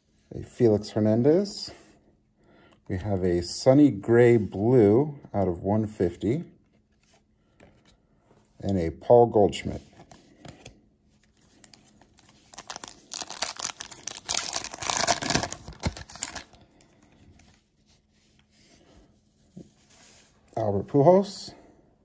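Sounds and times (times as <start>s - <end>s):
trading cards crackling and rustling: 9.6s - 18.1s.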